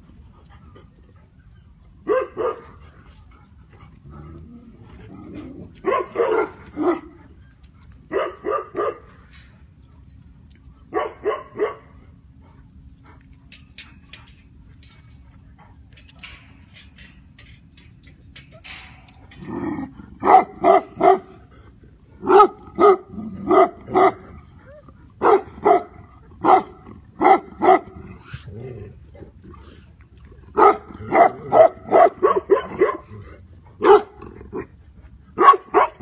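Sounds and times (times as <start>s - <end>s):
dog barking: 2.1s - 2.7s, 5.8s - 7.1s, 8.1s - 9.1s, 10.9s - 11.9s, 20.2s - 21.3s, 22.2s - 24.2s, 25.2s - 27.9s, 30.6s - 33.0s, 33.8s - 34.2s, 35.4s - 36.0s.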